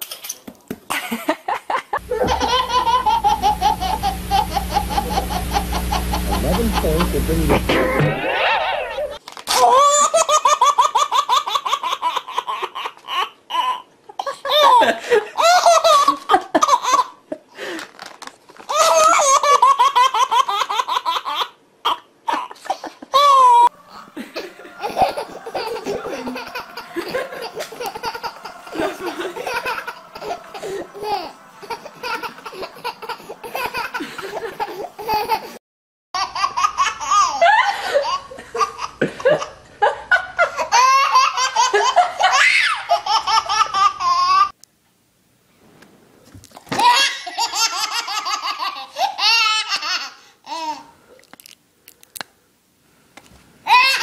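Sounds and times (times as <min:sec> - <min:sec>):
babies laughing: 0:02.0 - 0:17.2, 0:18.7 - 0:35.6, 0:36.2 - 0:44.6, 0:46.7 - 0:50.9, 0:53.7 - 0:54.0.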